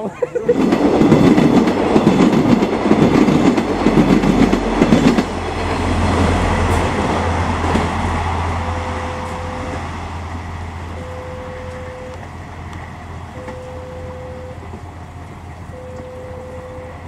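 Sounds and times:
train engine humming: 0.0 - 17.0
train wheels clattering: 0.4 - 9.9
short steady tones: 8.6 - 10.0, 10.9 - 12.3, 13.3 - 14.8, 15.7 - 17.0.

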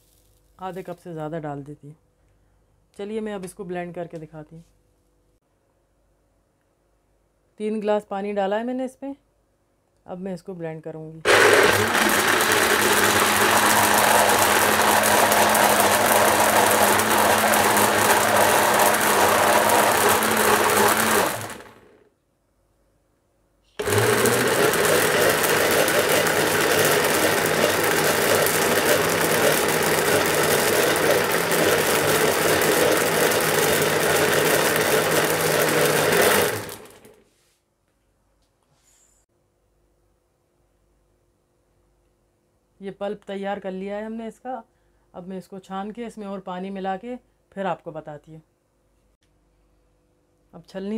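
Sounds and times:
blender running: 11.3 - 22.0, 23.8 - 37.2.

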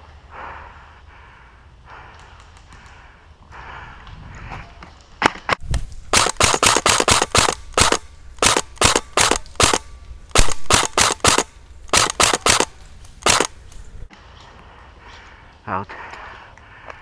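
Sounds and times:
airsoft rifle shots: 6.1 - 13.6.

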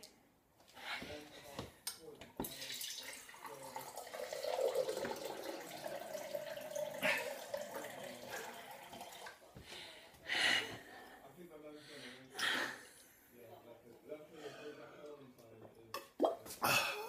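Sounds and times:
water pouring into a glass: 2.4 - 9.5.

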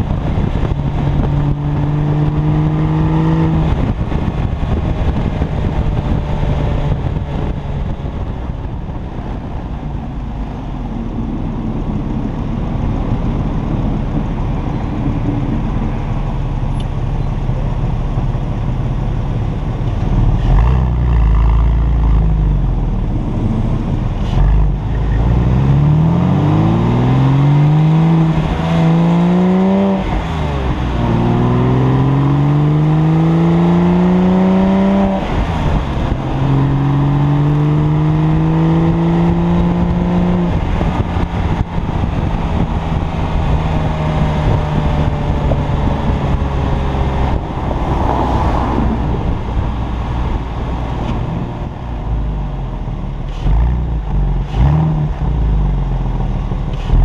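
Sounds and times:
car exhaust accelerating through gears: 0.0 - 57.0.

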